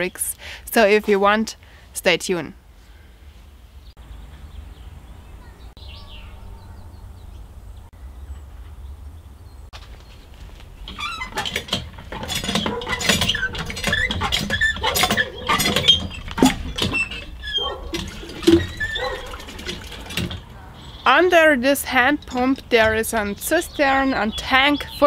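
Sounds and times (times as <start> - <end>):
hand pump strokes: 10.9 - 20.5
water splashing into watering can: 17.9 - 20.4.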